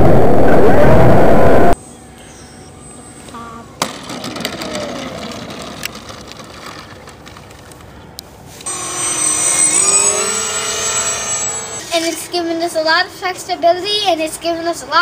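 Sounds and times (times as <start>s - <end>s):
wind noise: 0.0s - 1.8s
rc plane motor whine: 8.6s - 12.3s
rc plane propeller whine: 8.6s - 12.4s.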